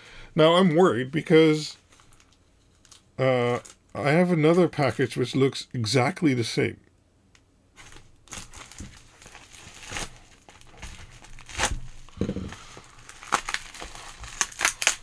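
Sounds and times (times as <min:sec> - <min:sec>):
plastic packaging crinkling and tearing: 0:01.8 - 0:03.9, 0:07.8 - 0:15.0.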